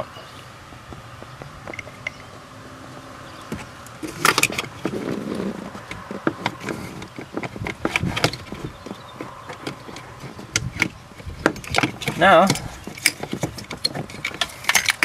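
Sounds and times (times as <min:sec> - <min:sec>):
plastic clicks and rattling: 0:03.5 - 0:15.0.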